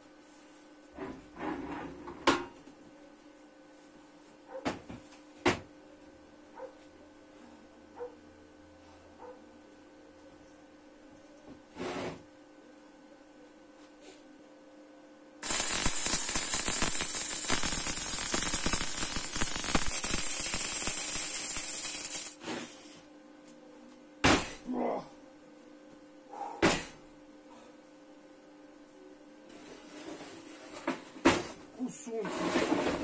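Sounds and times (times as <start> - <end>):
arc welding crackle and hiss: 15.4 - 22.4.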